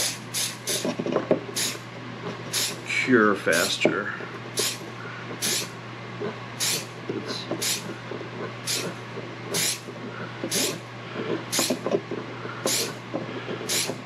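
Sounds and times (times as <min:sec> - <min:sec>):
steady low hum: 0:00.0 - 0:14.0
spray bottle spritzing: 0:07.6 - 0:07.9, 0:08.6 - 0:09.0, 0:09.6 - 0:09.9.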